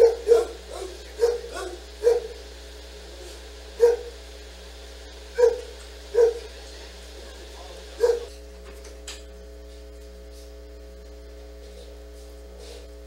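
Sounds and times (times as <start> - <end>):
dog barking: 0.0 - 2.4, 3.8 - 4.2, 5.3 - 6.5, 8.0 - 8.3.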